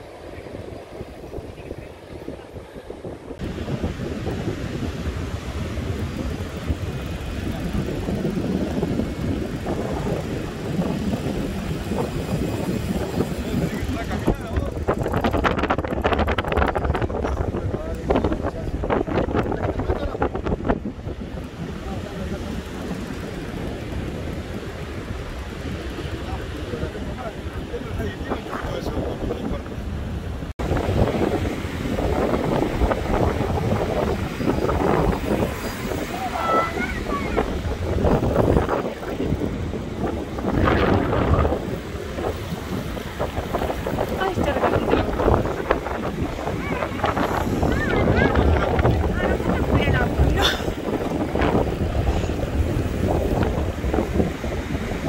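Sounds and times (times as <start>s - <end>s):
surf washing: 0.0s - 55.0s
wind buffeting microphone: 0.0s - 55.0s
surf breaking: 30.6s - 55.0s.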